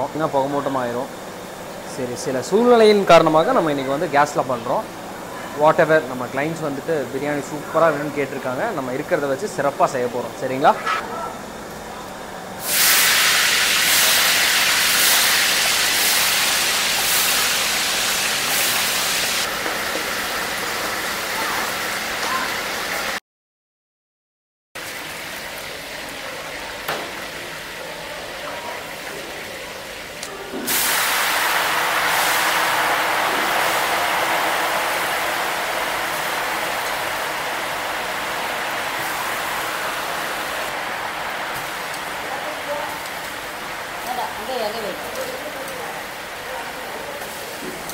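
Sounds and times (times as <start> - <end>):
spices sizzling in hot oil: 12.5 - 23.2, 24.8 - 47.9.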